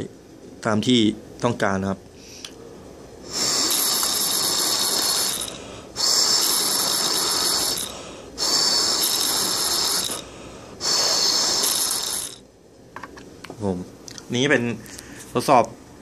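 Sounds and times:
breath puffs: 3.3 - 12.3
impeller whirring high-pitched: 3.3 - 12.4.

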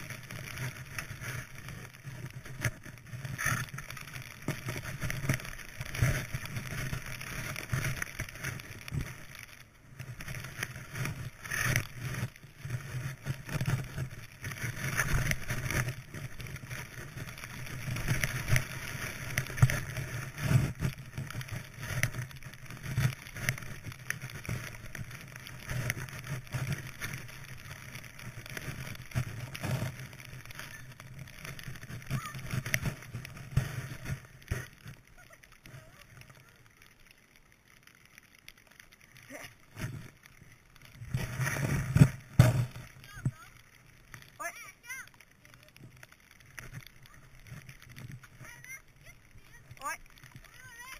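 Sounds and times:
low microphone rumble: 0.0 - 36.8
skis hissing through snow: 0.0 - 36.9, 38.2 - 50.9.

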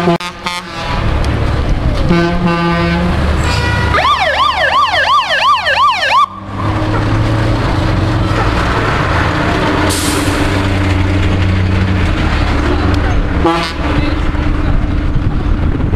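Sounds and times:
fire engine horn blast: 0.0 - 1.2, 2.0 - 6.5, 13.4 - 14.0
engine running: 0.0 - 15.9
siren yelping: 3.9 - 6.6.

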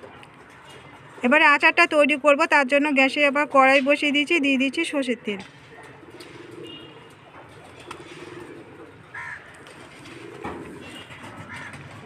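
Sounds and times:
pigeons cooing: 5.6 - 12.0.

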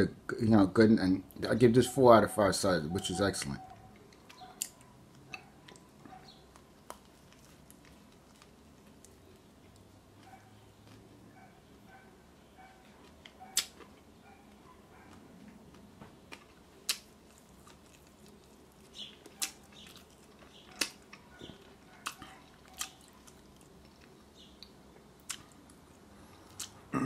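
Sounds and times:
person chewing food: 3.4 - 27.0
wet mouth clicks and smacks: 24.6 - 25.6, 26.5 - 26.8.

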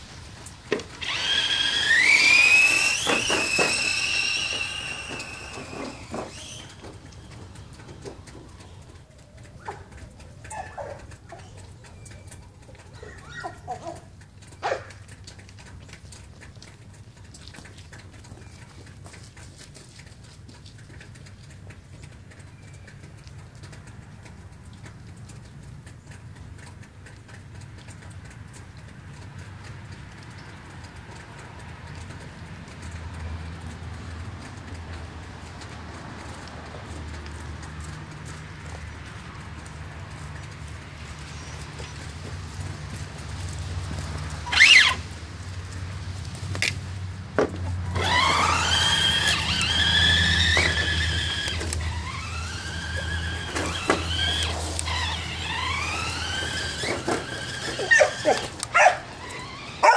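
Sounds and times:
electric motor whining: 0.9 - 7.0, 44.4 - 45.0, 47.8 - 59.9
light ticks and taps: 6.8 - 44.4.

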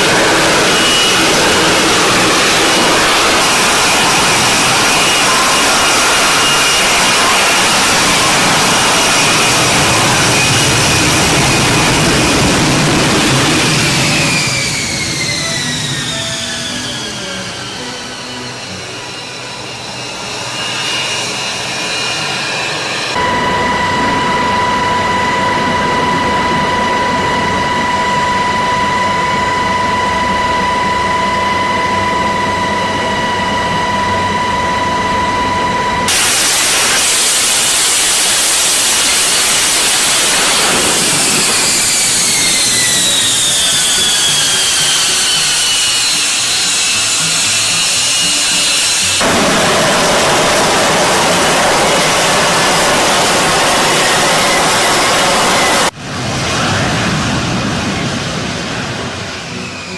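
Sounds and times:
jet engine whine: 0.0 - 59.9
rushing jet noise: 0.0 - 59.9.

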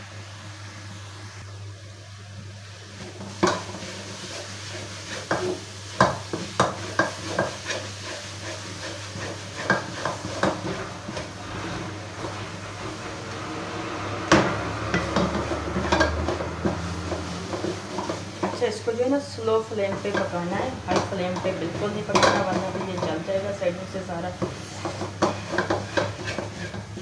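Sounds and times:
wooden spatula scraping pan: 3.3 - 18.8, 19.9 - 23.3, 24.4 - 27.0
spatula knocking on pan: 5.3 - 7.8, 14.3 - 18.6, 22.1 - 23.2, 24.4 - 26.8.

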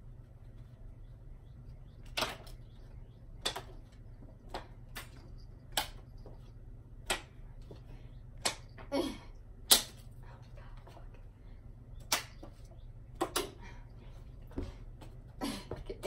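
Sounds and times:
playing cards snapping: 9.7 - 10.0.

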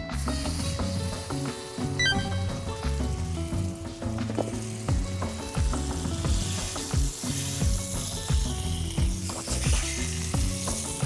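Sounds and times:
background music with steady beat: 0.0 - 11.0
steak sizzling in a pan: 0.1 - 11.0.

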